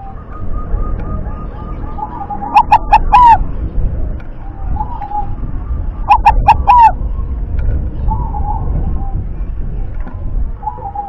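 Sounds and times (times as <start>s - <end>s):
dove cooing: 0.0s - 3.4s, 4.4s - 7.0s, 10.6s - 11.0s.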